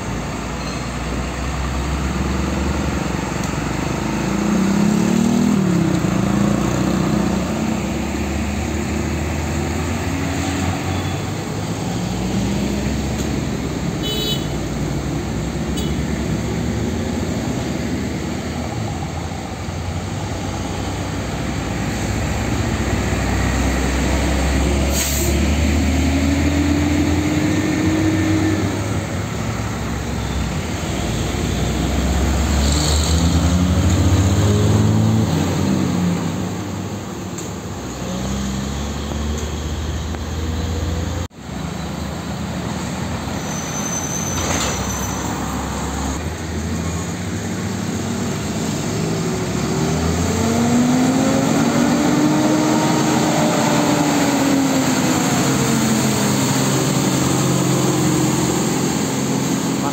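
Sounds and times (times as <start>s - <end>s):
diesel truck engines rumbling: 0.0s - 59.9s
short sharp hisses: 24.9s - 25.4s.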